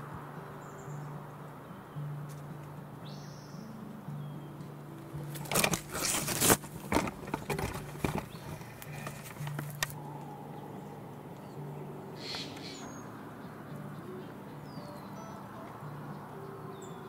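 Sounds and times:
camera handling noise: 0:05.3 - 0:10.0.

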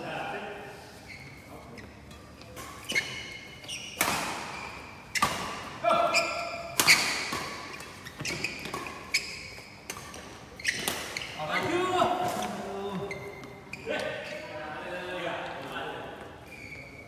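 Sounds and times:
rackets hitting shuttlecock: 0:02.4 - 0:11.4.

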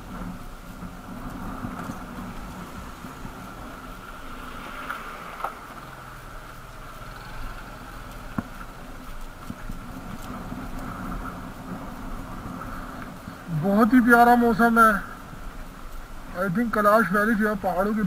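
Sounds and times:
motorcycle engine running: 0:00.0 - 0:13.5.

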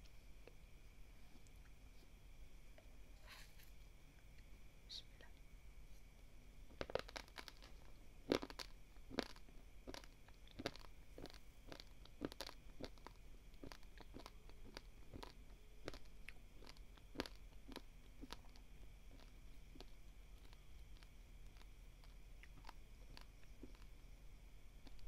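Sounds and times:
rice grains crunching when chewed: 0:06.7 - 0:24.1, 0:24.8 - 0:25.0.

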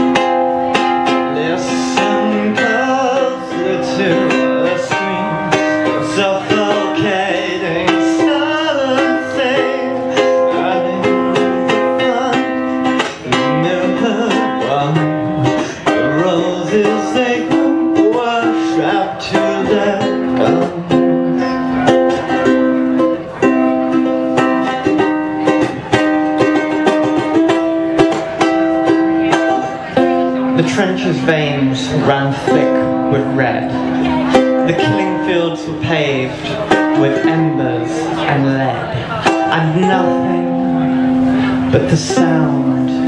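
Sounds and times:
person singing: 0:00.0 - 0:43.0
ukulele playing: 0:00.0 - 0:43.0.

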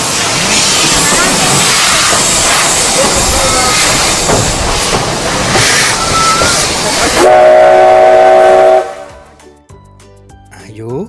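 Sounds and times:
steam locomotive hissing: 0:00.0 - 0:09.2
steam whistle blast: 0:07.2 - 0:09.2.

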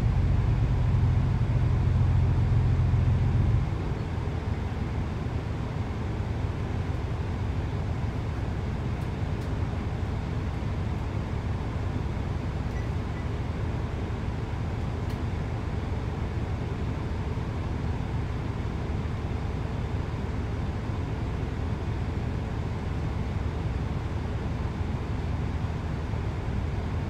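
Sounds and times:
train low rumble: 0:00.0 - 0:27.0.

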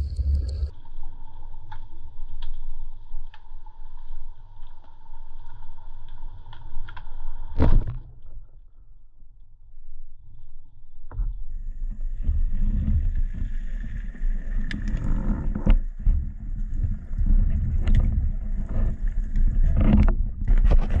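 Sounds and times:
low underwater rumble: 0:00.0 - 0:01.4, 0:11.3 - 0:21.0.

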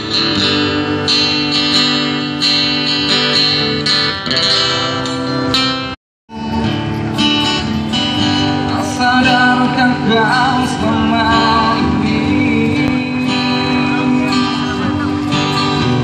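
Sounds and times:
acoustic guitar strumming: 0:00.0 - 0:16.0
man singing into a microphone: 0:06.3 - 0:07.2, 0:08.4 - 0:16.0.

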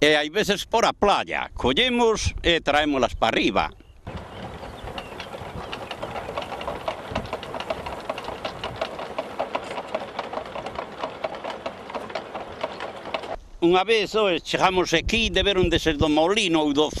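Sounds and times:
wind rushing: 0:04.1 - 0:09.2
plastic windmills clicking and rattling: 0:04.1 - 0:13.4.

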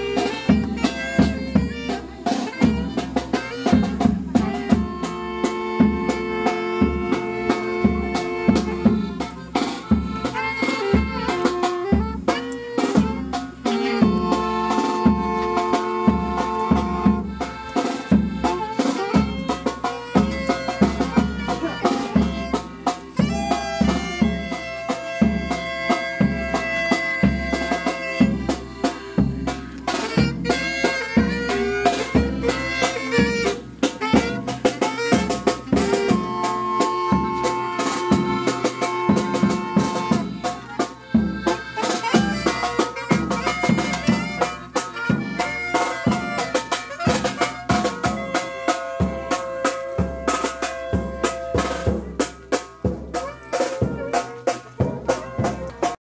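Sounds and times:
accordion playing: 0:00.0 - 0:56.0
saxophones playing: 0:00.0 - 0:56.0
steady drum beat: 0:00.0 - 0:56.0.

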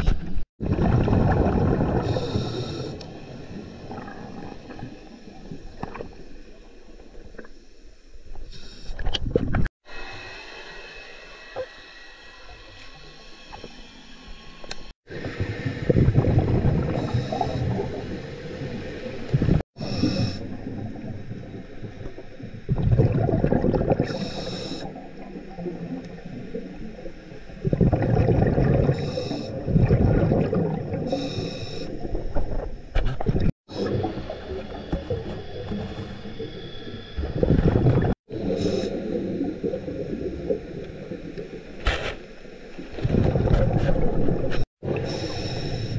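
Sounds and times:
diver exhaling bubbles: 0:00.6 - 0:06.1, 0:15.1 - 0:26.5, 0:27.6 - 0:32.6, 0:33.2 - 0:41.4, 0:43.0 - 0:45.9.

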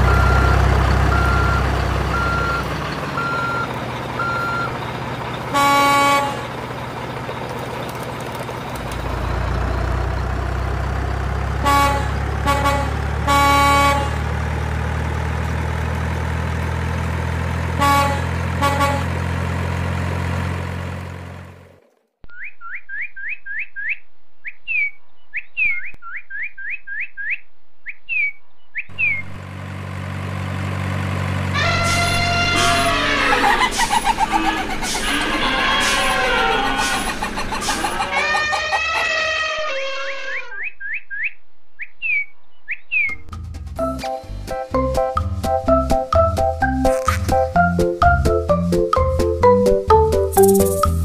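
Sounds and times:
truck engine running: 0:00.0 - 0:22.1, 0:28.9 - 0:39.5, 0:43.2 - 0:51.0
horn toots: 0:05.4 - 0:06.6, 0:11.6 - 0:14.3, 0:17.7 - 0:19.3, 0:31.5 - 0:40.6, 0:46.7 - 0:47.6
quick rising chirps: 0:39.9 - 0:43.3, 0:50.3 - 0:51.0.

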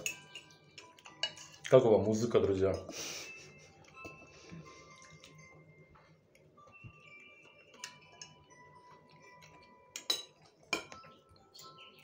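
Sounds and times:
faint background music: 0:00.0 - 0:12.0
chewing: 0:03.8 - 0:06.7.

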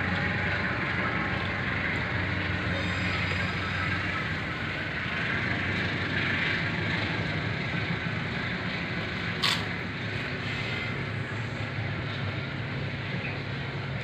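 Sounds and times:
sharp click: 0:09.4 - 0:09.7.

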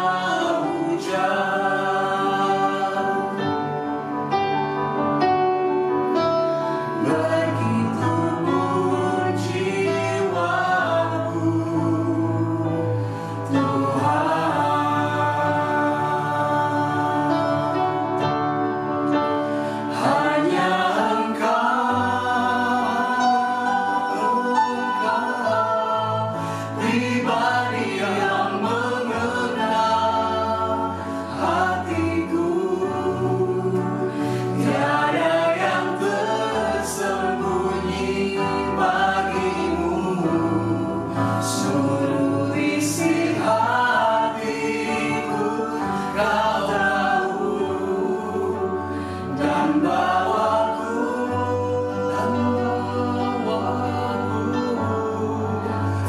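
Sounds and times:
group singing praise song: 0:00.0 - 0:04.3, 0:06.6 - 0:56.0
electric keyboard chords: 0:00.0 - 0:56.0.

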